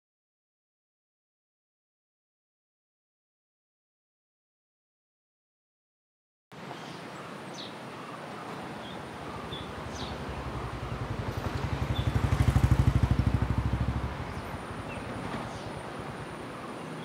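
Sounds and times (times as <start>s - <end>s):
birds chirping: 6.6s - 17.0s
vehicle engine rumble passing: 9.1s - 16.7s.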